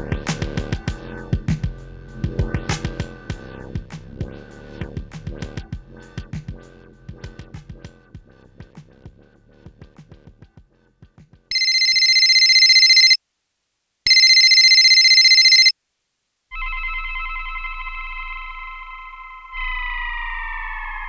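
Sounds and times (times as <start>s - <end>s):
telephone bell ringing: 11.5s - 13.2s, 14.1s - 15.7s.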